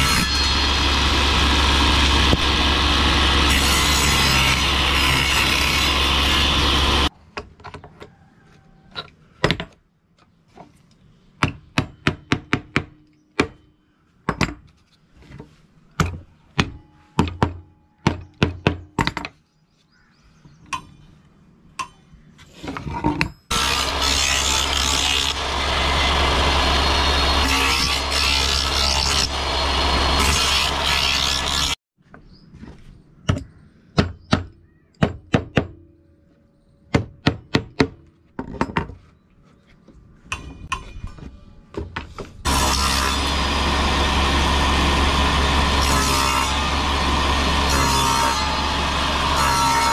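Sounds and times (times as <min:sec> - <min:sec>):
table saw running: 0:00.0 - 0:07.1, 0:23.5 - 0:31.8, 0:42.5 - 0:49.9.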